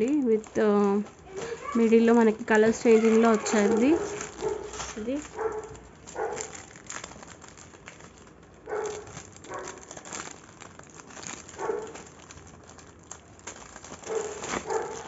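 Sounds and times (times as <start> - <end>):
plastic packets crinkling: 0.0 - 15.0
dog barking: 3.0 - 6.6, 8.7 - 9.8, 11.6 - 12.0, 14.1 - 15.0.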